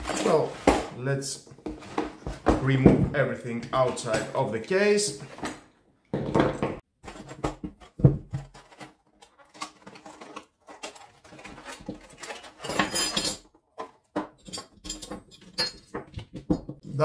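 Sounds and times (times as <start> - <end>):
rustling: 7.0 - 12.9
tool parts clicking and rattling: 8.4 - 16.9.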